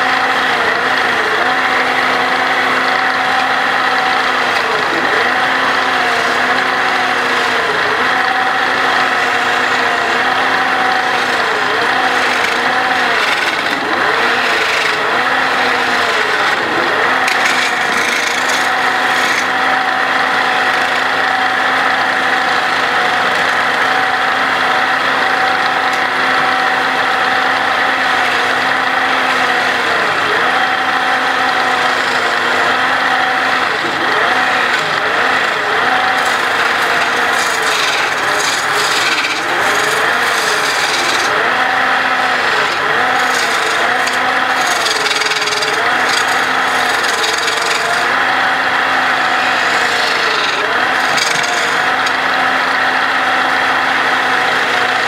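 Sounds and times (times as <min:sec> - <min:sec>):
chisel scraping spinning wood: 0:00.0 - 0:55.0
wood lathe motor hum: 0:00.0 - 0:55.0.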